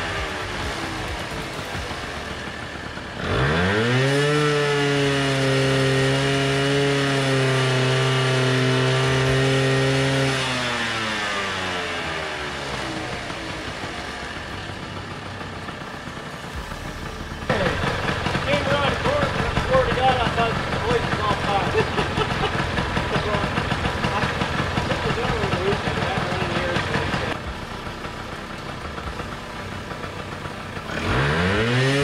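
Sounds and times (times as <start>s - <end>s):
scooter engine revving: 0.0s - 32.0s.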